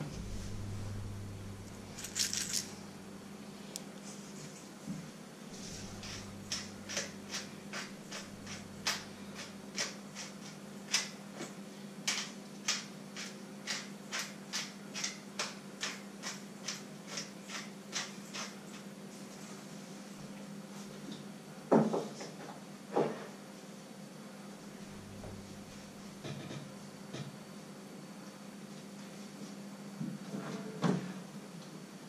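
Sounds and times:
low steady hum: 0.0 - 10.9, 24.0 - 30.7.

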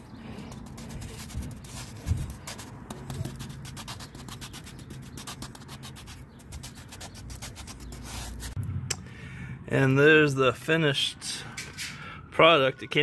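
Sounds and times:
sponge rubbing mortar on cement: 0.0 - 8.6.

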